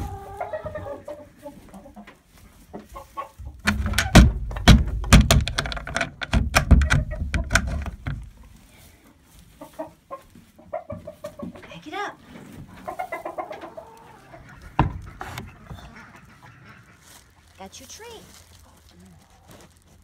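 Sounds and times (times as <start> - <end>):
chickens clucking: 0.0 - 5.0, 6.6 - 20.0
rustling: 0.0 - 20.0
loud knocks: 3.6 - 8.2.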